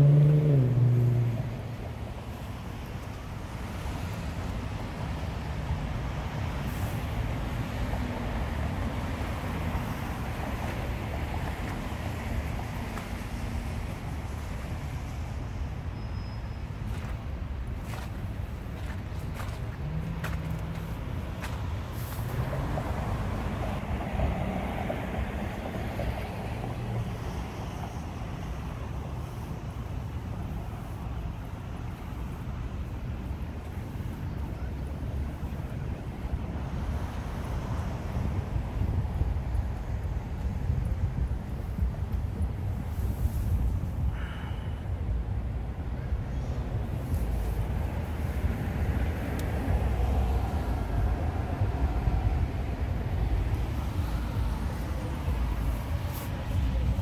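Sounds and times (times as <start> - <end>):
road traffic hiss: 0.0 - 57.0
wind rumble on microphone: 16.8 - 57.0.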